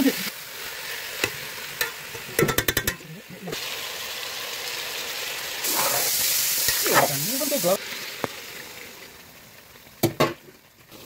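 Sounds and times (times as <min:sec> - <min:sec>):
food sizzling in a pan: 0:00.0 - 0:11.0.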